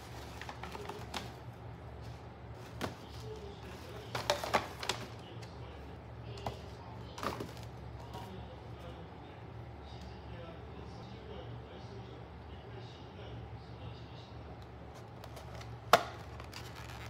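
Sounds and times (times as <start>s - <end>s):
paper bags rustling: 0.0s - 5.4s, 15.2s - 17.0s
steady low hum: 0.0s - 17.0s.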